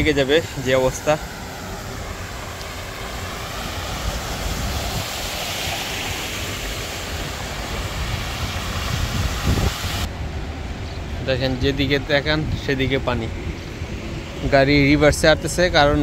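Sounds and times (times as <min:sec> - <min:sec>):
tyres throwing up water spray: 0:00.0 - 0:10.1
low traffic rumble: 0:00.0 - 0:16.0.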